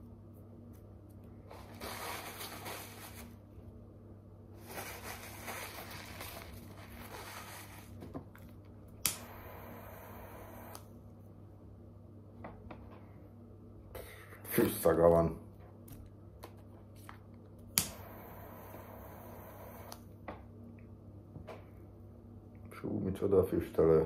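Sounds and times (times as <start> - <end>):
sharp click: 9.0 - 9.4, 17.8 - 18.0.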